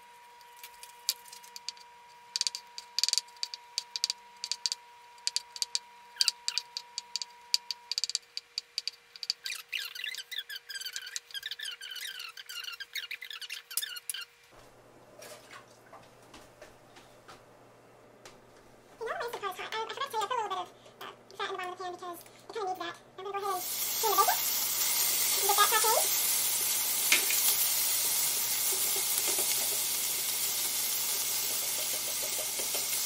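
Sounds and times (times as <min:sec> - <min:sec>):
high-pitched squeaky chatter: 0:09.3 - 0:14.3.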